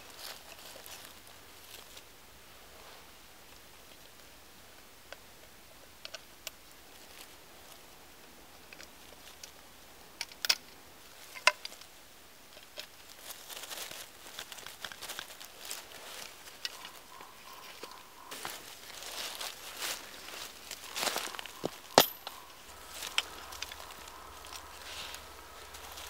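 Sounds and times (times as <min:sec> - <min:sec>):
dry leaves rustling: 0:00.0 - 0:04.4, 0:06.6 - 0:10.0, 0:11.0 - 0:26.0
wood and metal clicks and taps: 0:05.1 - 0:06.8, 0:10.2 - 0:11.9
sharp metal clinks: 0:21.0 - 0:23.3.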